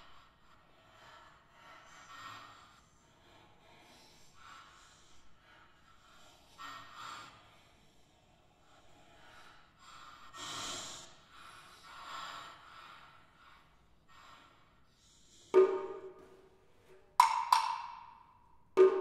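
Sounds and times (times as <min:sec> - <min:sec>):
wooden clapper clack: 0:15.6 - 0:16.4, 0:17.0 - 0:19.0.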